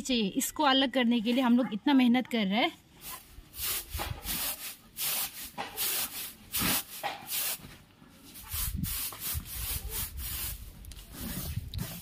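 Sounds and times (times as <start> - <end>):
grain swishing on winnowing tray: 3.0 - 7.7.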